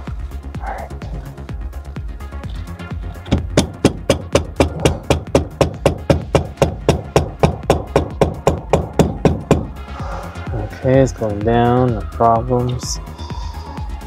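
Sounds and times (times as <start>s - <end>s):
hammer knocking on metal: 3.2s - 9.8s.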